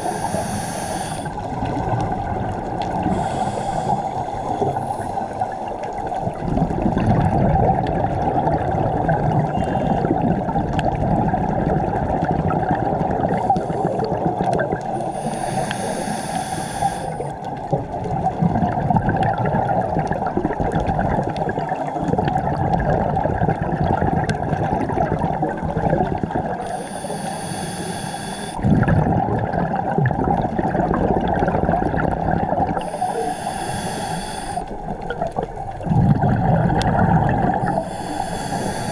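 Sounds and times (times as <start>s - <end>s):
diver breathing hiss: 0.0s - 1.5s, 3.0s - 5.7s, 15.0s - 17.3s, 26.6s - 28.6s, 32.8s - 34.8s, 37.6s - 38.9s
underwater rush of water: 0.0s - 38.9s.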